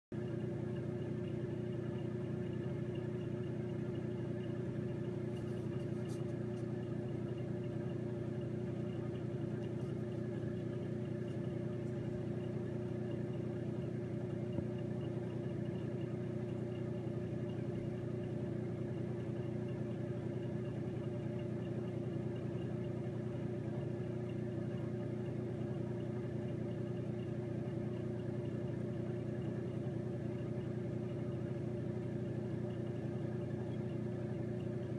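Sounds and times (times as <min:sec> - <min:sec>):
steady machine hum: 0:00.1 - 0:34.9.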